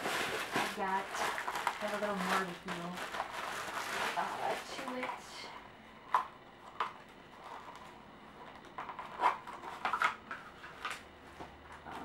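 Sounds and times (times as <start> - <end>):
packing paper rustling: 0.0 - 5.2.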